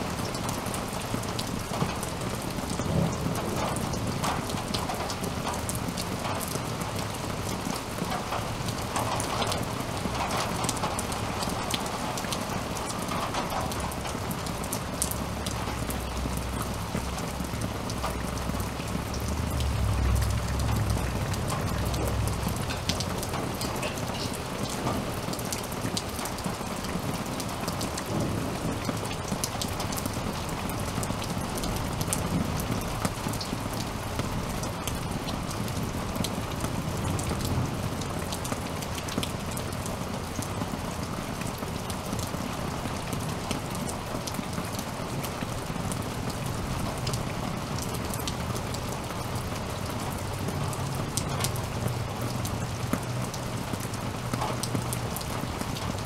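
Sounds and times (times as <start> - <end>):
raindrops ticking close by: 0.0 - 56.0
steady rain falling: 0.0 - 56.0
low thunder rumbles: 2.6 - 7.4, 15.2 - 26.0, 28.0 - 35.0.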